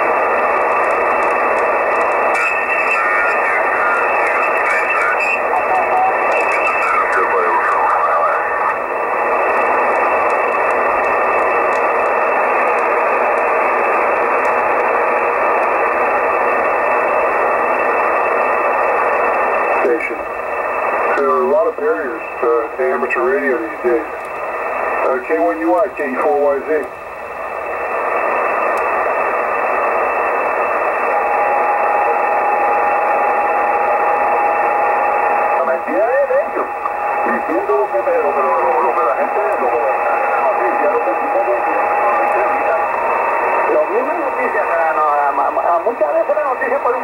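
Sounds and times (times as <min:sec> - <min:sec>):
radio static: 0:00.0 - 0:47.0
garbled radio voice: 0:02.0 - 0:08.9, 0:19.8 - 0:20.2, 0:35.6 - 0:43.0.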